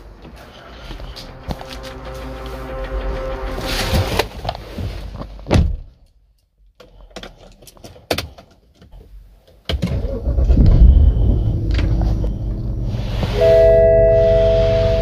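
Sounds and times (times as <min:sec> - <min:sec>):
music: 0:00.3 - 0:04.8
car engine starting and running: 0:09.7 - 0:15.0.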